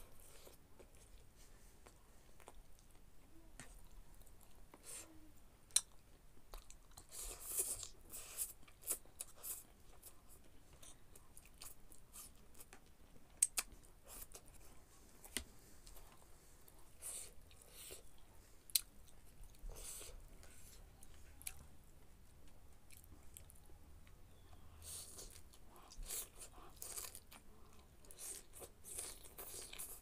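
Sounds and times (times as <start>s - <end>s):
chewing and slurping noodles: 24.8s - 30.0s.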